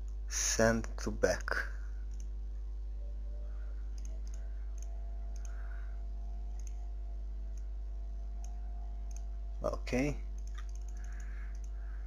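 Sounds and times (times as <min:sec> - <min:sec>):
low electrical hum: 0:00.0 - 0:12.0
computer mouse clicks: 0:02.1 - 0:02.3, 0:03.9 - 0:05.8, 0:06.5 - 0:06.9, 0:08.4 - 0:09.3, 0:10.3 - 0:11.8.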